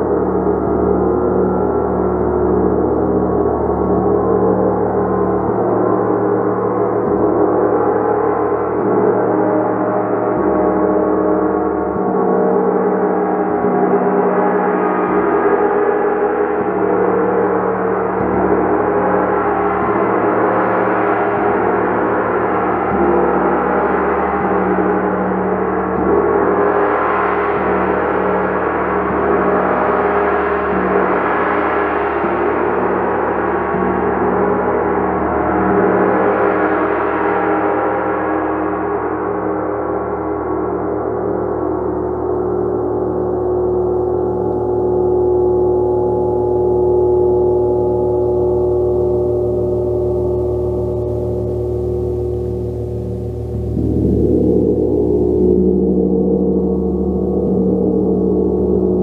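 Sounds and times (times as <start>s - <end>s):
gong ringing: 45.4s - 59.0s.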